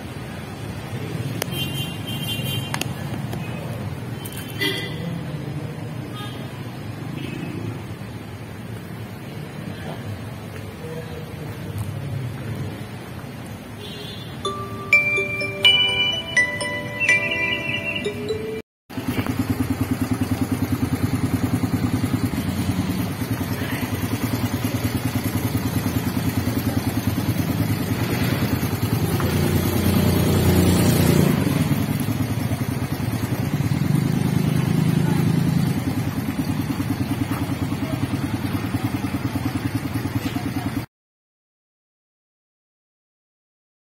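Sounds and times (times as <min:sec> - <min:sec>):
motorcycle engine idling: 0:18.9 - 0:40.9.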